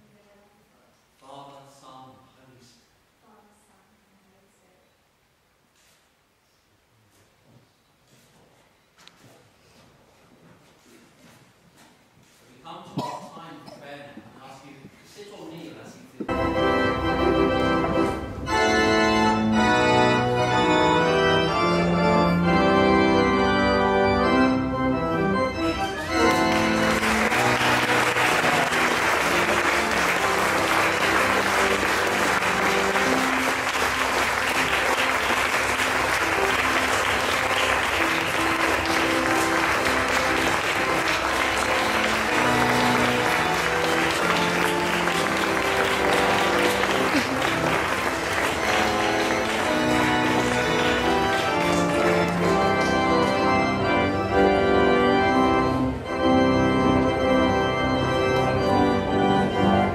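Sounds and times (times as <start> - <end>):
church organ chords: 16.3 - 59.9
people applauding: 25.8 - 54.0.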